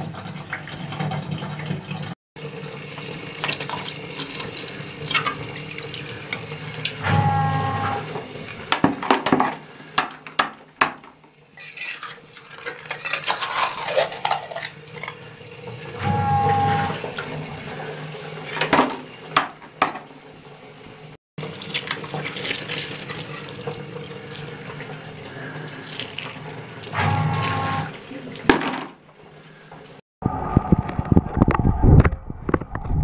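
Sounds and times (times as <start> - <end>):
water splashing and trickling: 0.0 - 7.1, 21.4 - 30.0.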